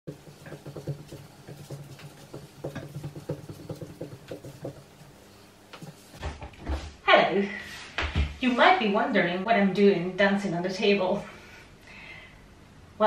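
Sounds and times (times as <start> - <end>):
pointe shoes tapping on tabletop: 0.1 - 4.9.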